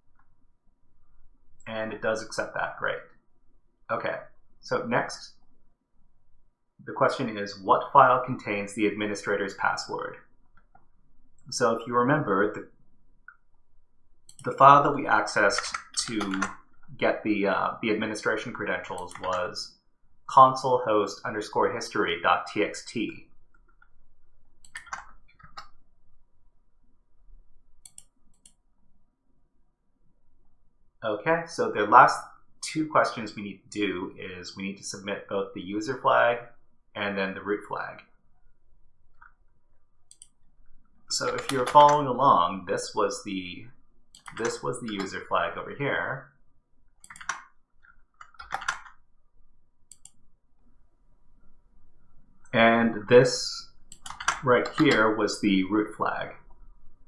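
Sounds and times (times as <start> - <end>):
computer mouse clicks: 14.3 - 14.6, 15.4 - 16.9, 18.9 - 19.6, 24.6 - 25.8, 27.8 - 28.6, 40.1 - 40.5, 41.1 - 42.1, 44.1 - 45.2, 47.0 - 49.0, 49.9 - 50.2, 53.9 - 55.2
faint computer mouse clicks: 27.8 - 28.6, 40.1 - 40.4, 49.9 - 50.2.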